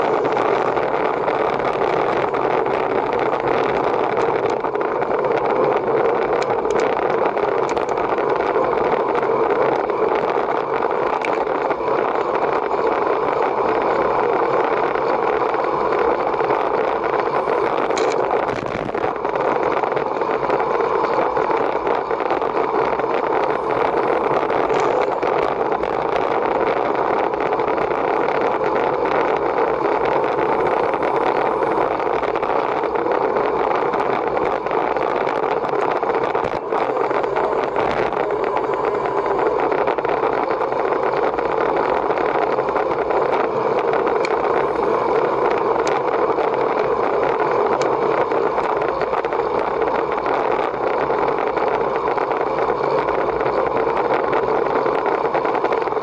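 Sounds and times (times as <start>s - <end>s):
bicycle road noise: 0.0s - 56.0s
rushing wind: 0.0s - 56.0s.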